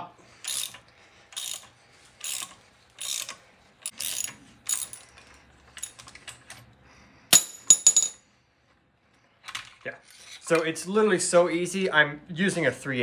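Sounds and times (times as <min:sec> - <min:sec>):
socket ratchet clicking: 0:00.4 - 0:05.0
sharp metallic clanks: 0:07.3 - 0:08.2.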